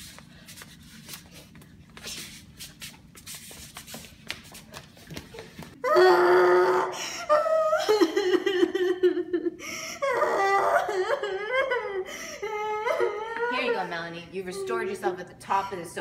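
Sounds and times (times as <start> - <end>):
girl wailing: 5.8 - 8.5, 10.0 - 15.0.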